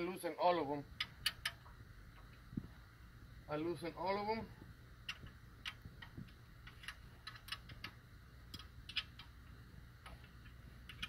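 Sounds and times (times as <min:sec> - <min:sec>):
faint steady hum: 0:00.0 - 0:11.0
wrench clicking on nuts: 0:05.0 - 0:09.4.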